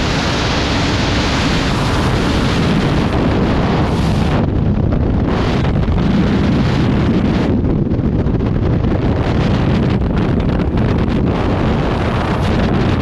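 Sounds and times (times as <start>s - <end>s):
freefall wind buffeting microphone: 0.0s - 13.0s.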